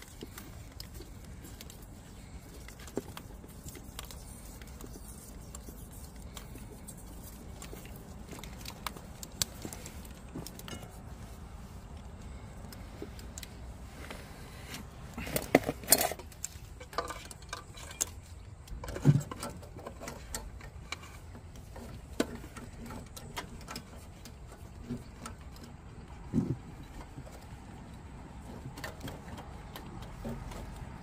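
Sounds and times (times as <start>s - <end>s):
clicks and knocks of wiring work: 14.7s - 31.0s.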